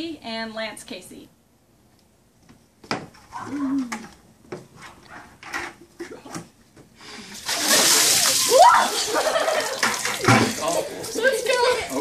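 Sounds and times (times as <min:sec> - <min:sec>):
water splashing onto people: 0:07.2 - 0:12.0
person crying out: 0:08.4 - 0:09.1.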